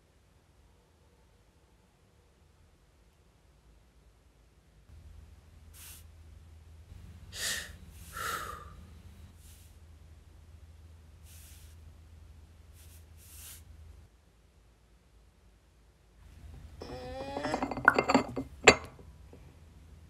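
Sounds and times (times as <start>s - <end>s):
low steady hum: 4.9s - 20.0s
person sniffing and gasping: 7.4s - 8.7s.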